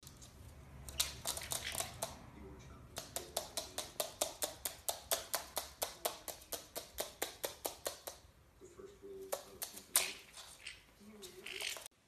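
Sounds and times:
bird feet tapping on wood: 0.8 - 2.2, 2.9 - 8.3.

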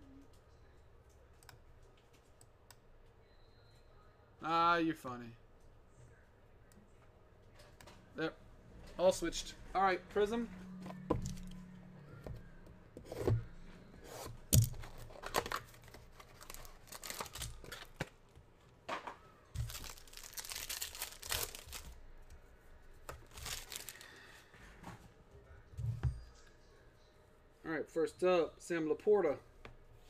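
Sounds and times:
foil wrapper tearing and crinkling: 16.2 - 18.0, 19.6 - 22.0, 23.2 - 24.1.

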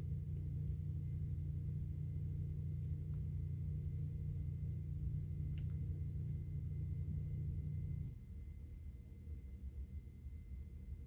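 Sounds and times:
faint high whine: 0.0 - 11.0
low hum: 0.0 - 11.0
faint clicks: 5.5 - 5.8.

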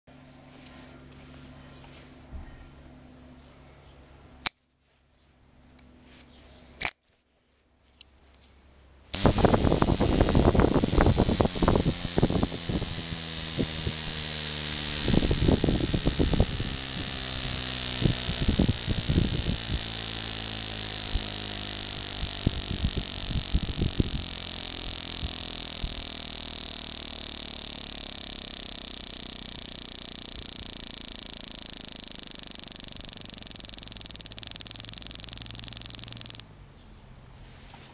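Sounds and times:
miniature engine buzzing: 9.1 - 36.4
click: 9.2 - 36.4.

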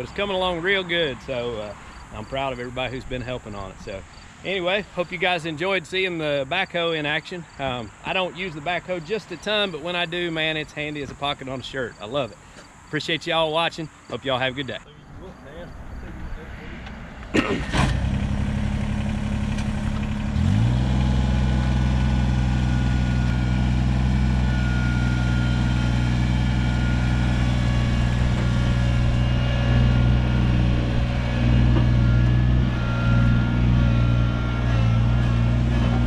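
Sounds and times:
tractor diesel engine running: 17.4 - 36.0.

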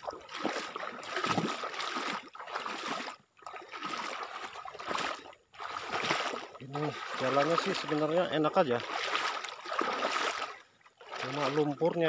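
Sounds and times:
water sloshing around wading legs: 0.0 - 12.0.

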